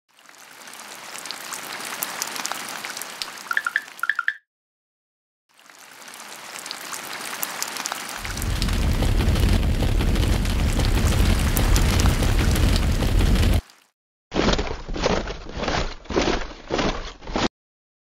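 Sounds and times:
fine crackling hiss: 0:08.2 - 0:13.6.

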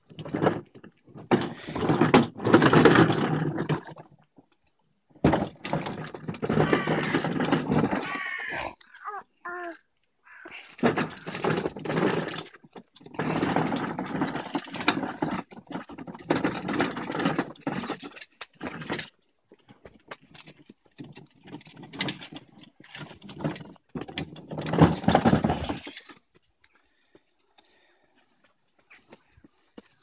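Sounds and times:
plastic toy wheels rattling on concrete: 0:00.0 - 0:04.6, 0:05.2 - 0:09.8, 0:10.6 - 0:26.4.

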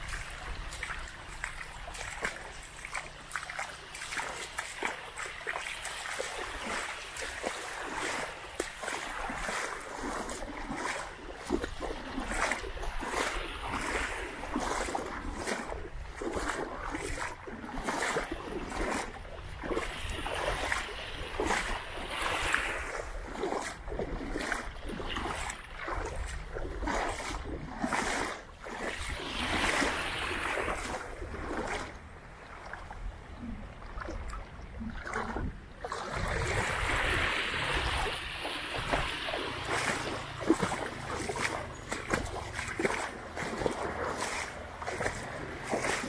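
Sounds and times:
small sea waves washing: 0:00.0 - 0:46.0
splashes and trickling: 0:00.0 - 0:46.0.

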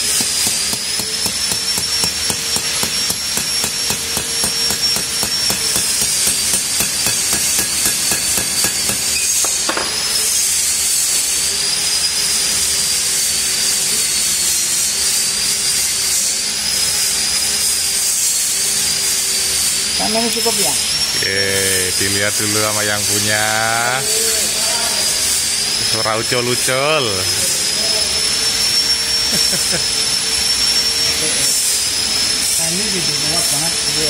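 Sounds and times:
small hammer tapping on metal: 0:00.0 - 0:10.0
wavering high-pitched whine: 0:00.0 - 0:34.0.

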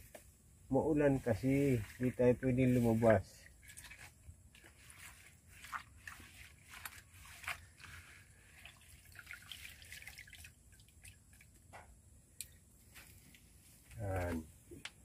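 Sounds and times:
leaves rustling: 0:00.8 - 0:10.5, 0:12.8 - 0:14.7.

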